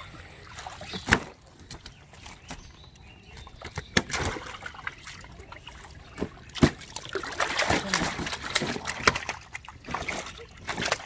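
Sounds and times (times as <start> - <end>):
fish flapping in water: 3.6 - 11.0
net of fish slapping onto boat: 6.2 - 11.0.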